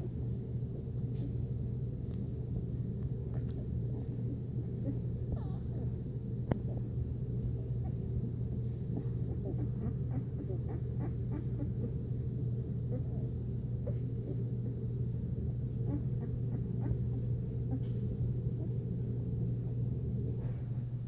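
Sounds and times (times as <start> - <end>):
faint high whine: 0.0 - 21.0
low hum: 0.0 - 21.0
puppies squeaking: 4.8 - 5.8, 9.1 - 11.9.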